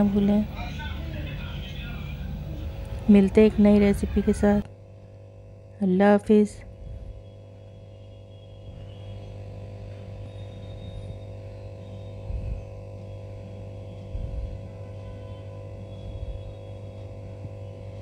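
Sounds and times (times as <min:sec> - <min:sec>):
electrical hum: 0:00.0 - 0:18.0
dull low thumps: 0:14.0 - 0:14.7.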